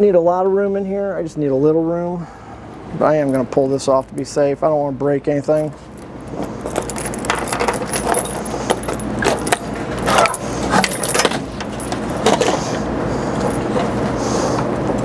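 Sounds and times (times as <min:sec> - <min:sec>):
metal clicks and rattles: 0:05.6 - 0:12.6
keys jangling: 0:05.6 - 0:12.7, 0:13.4 - 0:14.0.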